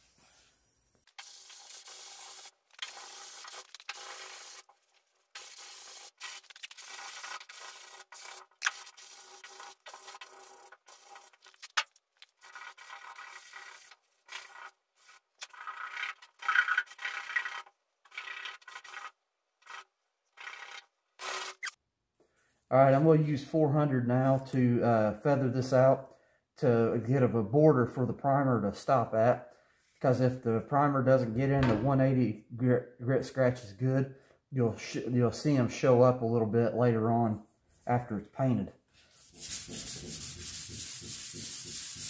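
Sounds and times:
sandpaper scratching on filler: 1.2s - 19.8s, 39.0s - 42.0s.

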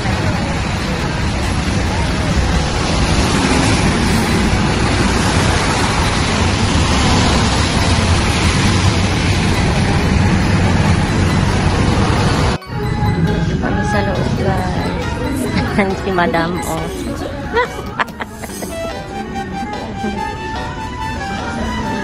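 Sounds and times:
tyre noise on wet road: 0.0s - 12.6s
low engine rumble: 0.0s - 22.0s.

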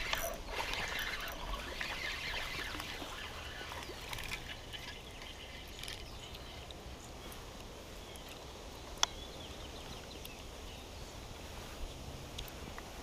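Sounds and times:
spinning reel cranking: 0.0s - 6.1s.

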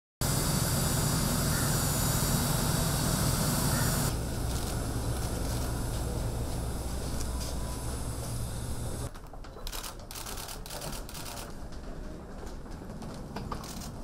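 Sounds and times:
jet turbine hiss and whine: 0.2s - 9.1s
low steady hum: 0.2s - 9.1s.

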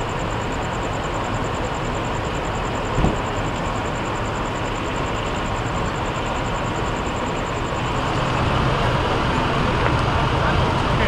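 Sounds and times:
diesel engine idling: 2.6s - 11.0s
rapid high-pitched pulsing: 2.6s - 11.0s.

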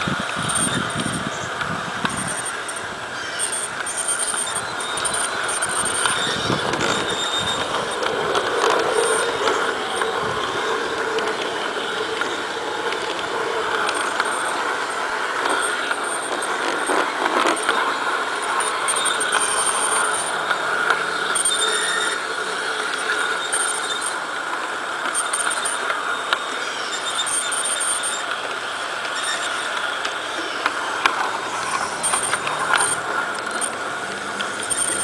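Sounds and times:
small electric motor whirring: 0.0s - 35.0s
wheels running on rails: 0.0s - 35.0s.

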